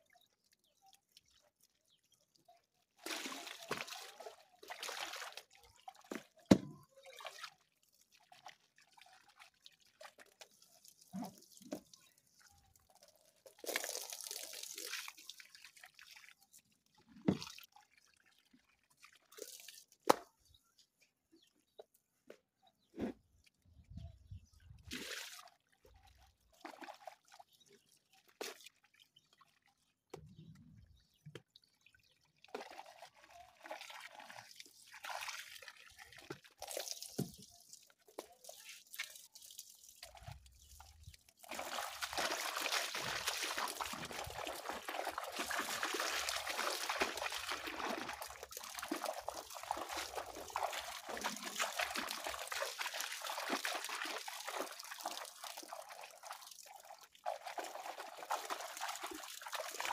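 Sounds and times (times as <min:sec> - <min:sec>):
water dripping and trickling: 0:00.0 - 0:20.2, 0:24.4 - 0:59.9
steady run of water: 0:34.0 - 0:59.9.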